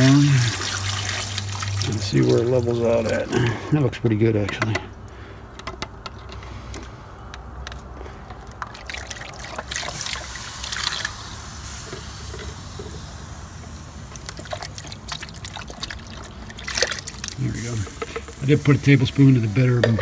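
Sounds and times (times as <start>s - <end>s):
liquid pouring and splashing: 0.0s - 3.6s, 8.5s - 13.0s, 14.0s - 20.0s.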